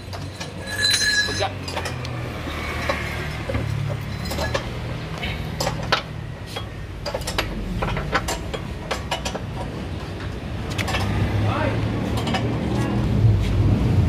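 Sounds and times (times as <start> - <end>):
metal tool clink: 0.0 - 2.1, 3.6 - 4.8.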